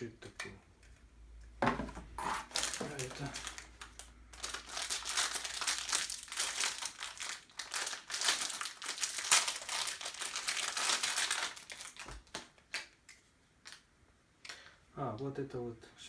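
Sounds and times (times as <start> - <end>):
plastic packaging crinkling: 2.2 - 13.0.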